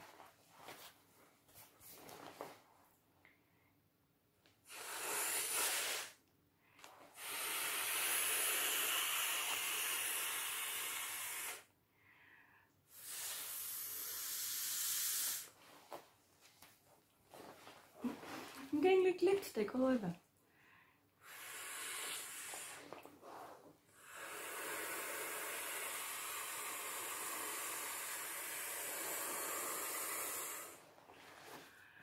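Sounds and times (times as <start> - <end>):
person blowing into valve: 4.6 - 6.2, 7.1 - 11.7, 12.9 - 15.6, 21.2 - 30.9.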